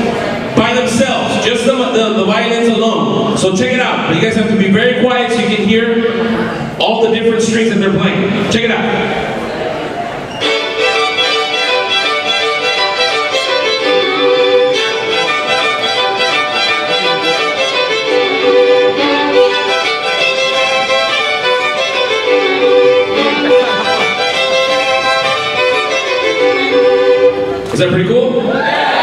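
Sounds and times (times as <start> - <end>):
violins playing a melody: 10.4 - 28.1.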